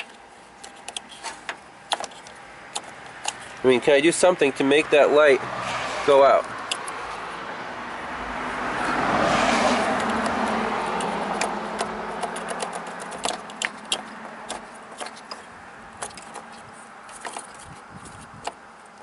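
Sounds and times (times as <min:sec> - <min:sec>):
passing vehicle road noise: 0:03.1 - 0:16.0
plastic connectors clicking: 0:10.0 - 0:17.6.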